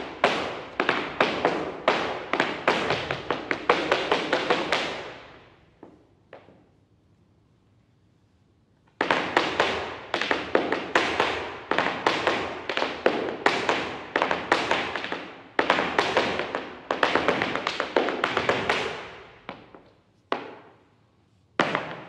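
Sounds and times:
shoes stamping on a bare floor: 0:00.0 - 0:05.2, 0:09.0 - 0:20.8.

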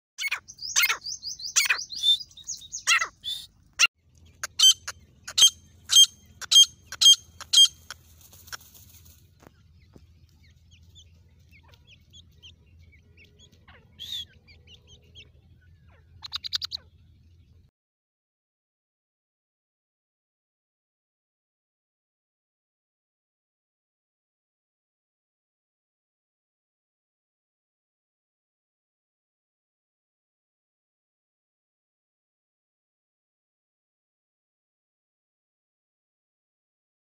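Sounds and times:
francolin calling: 0:00.2 - 0:03.5, 0:04.4 - 0:09.1, 0:09.7 - 0:16.9.

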